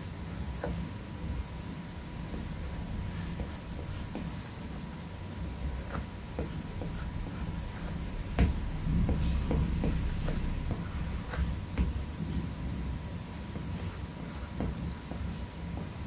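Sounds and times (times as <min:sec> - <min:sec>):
louder knock: 0:08.2 - 0:12.1.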